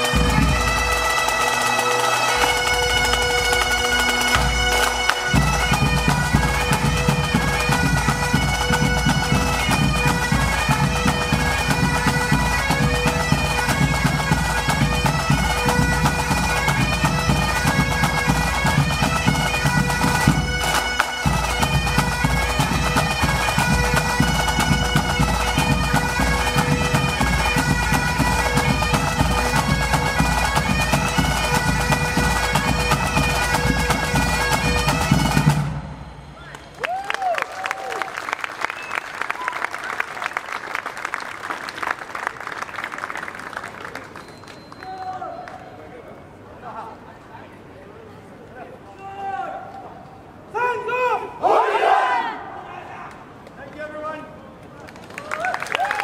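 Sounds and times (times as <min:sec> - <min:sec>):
drums playing: 0:00.0 - 0:01.1, 0:02.4 - 0:35.8
bagpipes playing: 0:00.0 - 0:35.7.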